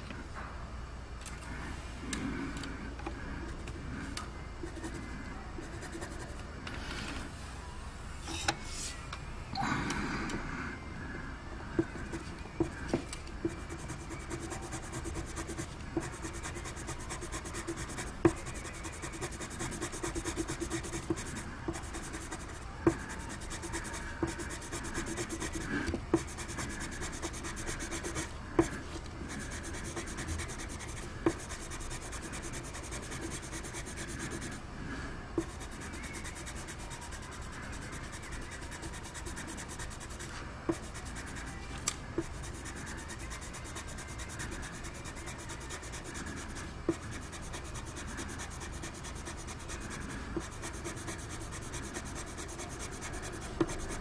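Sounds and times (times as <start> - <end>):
pencil scratching on paper: 4.6 - 6.4, 11.8 - 12.8, 13.4 - 34.6, 35.4 - 41.6, 42.2 - 54.0.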